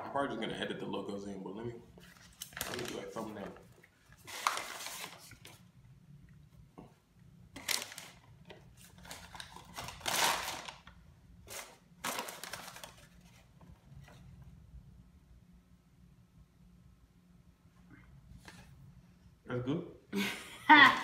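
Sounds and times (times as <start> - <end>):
paper and foil bags crinkling: 2.0 - 5.6, 7.6 - 13.5.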